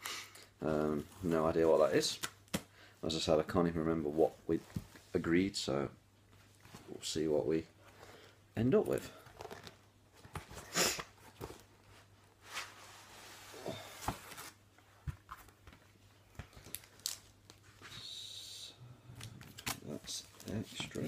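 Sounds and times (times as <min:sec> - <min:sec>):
packaging rustling and crinkling: 0:13.7 - 0:17.8.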